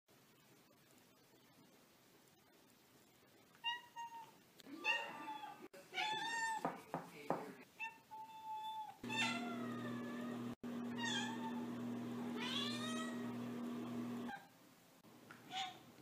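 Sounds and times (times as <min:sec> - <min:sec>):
cat meowing: 0:07.8 - 0:11.7, 0:12.4 - 0:13.4.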